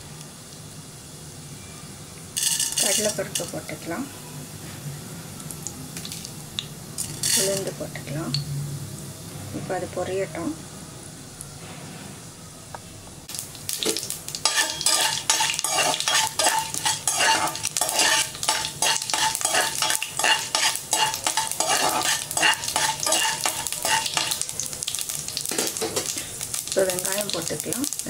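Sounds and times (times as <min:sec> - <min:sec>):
seeds sizzling in hot oil: 0:00.0 - 0:09.4, 0:13.2 - 0:28.0
spoon scraping pot: 0:14.4 - 0:24.5.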